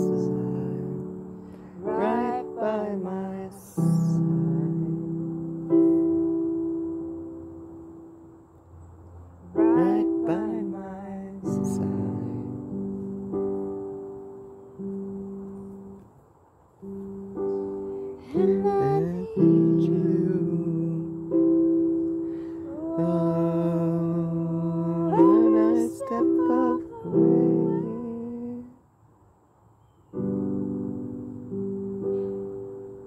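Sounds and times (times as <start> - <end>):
person singing: 0.0 - 5.8, 9.5 - 13.1, 18.0 - 28.8
electronic keyboard chords: 0.0 - 8.3, 9.4 - 16.1, 16.8 - 28.1, 30.1 - 33.0.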